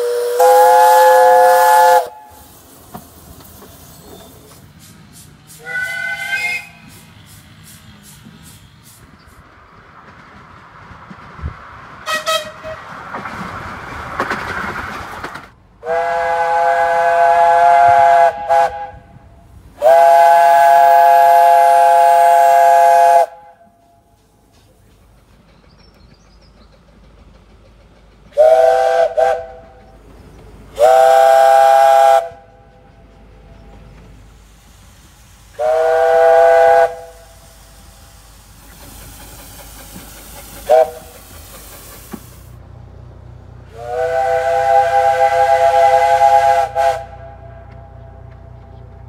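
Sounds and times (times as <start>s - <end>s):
steam locomotive whistle blasts: 0.0s - 2.6s, 5.5s - 7.0s, 12.0s - 12.8s, 15.8s - 19.2s, 19.8s - 24.1s, 28.4s - 29.8s, 30.8s - 32.5s, 35.5s - 37.7s, 40.6s - 41.2s, 43.7s - 47.7s
steam hiss: 0.0s - 9.6s, 15.8s - 42.6s.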